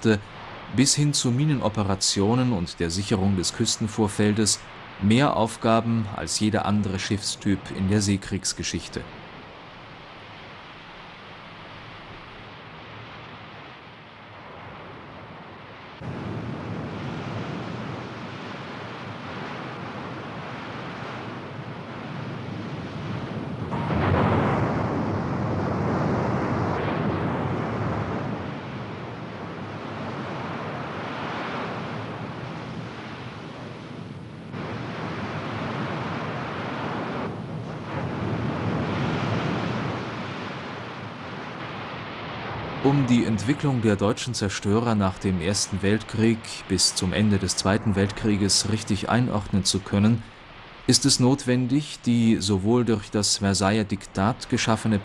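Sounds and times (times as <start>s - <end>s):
rushing sea water: 0.0s - 55.0s
wind: 0.0s - 55.0s.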